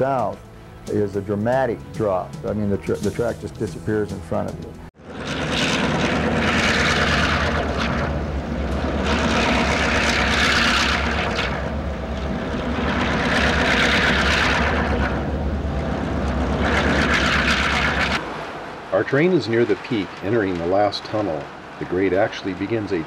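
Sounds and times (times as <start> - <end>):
diesel locomotive engine drone: 0.0 - 3.7, 4.7 - 18.9.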